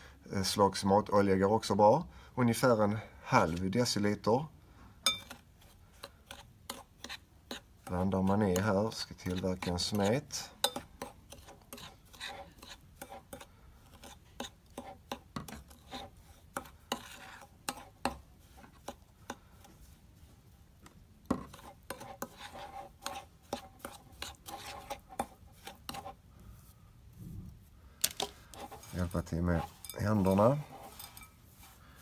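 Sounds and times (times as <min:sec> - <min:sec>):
spoon scraping glass bowl: 0:05.0 - 0:19.4, 0:21.3 - 0:26.2, 0:28.2 - 0:32.0.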